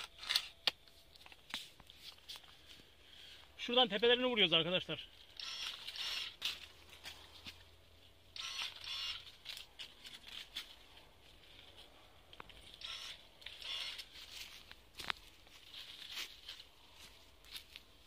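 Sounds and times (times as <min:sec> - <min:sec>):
rustling leaves and twigs: 0:05.2 - 0:08.0, 0:09.2 - 0:18.0.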